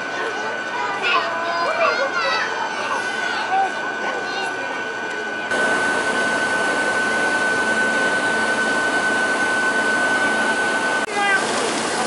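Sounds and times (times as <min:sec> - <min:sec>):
constant high whine: 0:00.0 - 0:12.0
train air-conditioning blowers hissing: 0:03.8 - 0:12.0.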